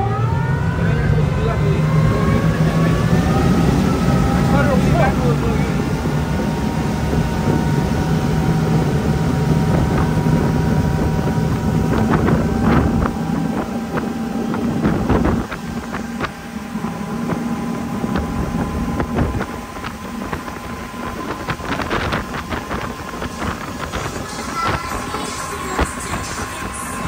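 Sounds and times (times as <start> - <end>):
motorboat engine drone: 0.0 - 27.0
wind buffeting microphone: 0.0 - 27.0
water splashing against hull: 3.0 - 27.0.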